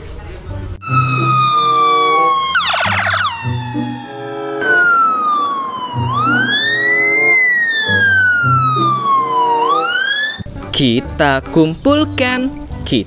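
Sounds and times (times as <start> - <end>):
ambulance siren wailing: 0.8 - 10.5
low repeating tune: 0.8 - 12.3.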